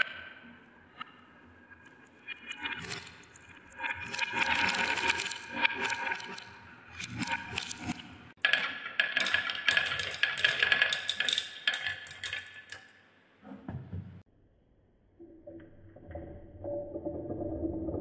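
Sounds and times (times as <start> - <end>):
marbles rattling on wooden tracks: 8.4 - 12.8.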